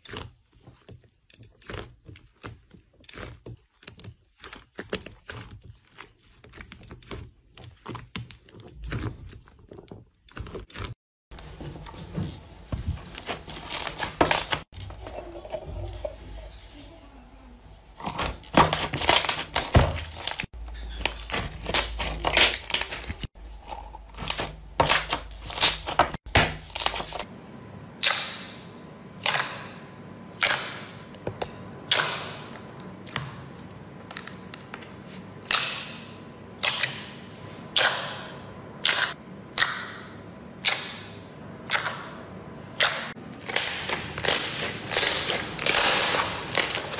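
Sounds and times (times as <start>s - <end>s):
slime squelching: 0.0s - 27.3s.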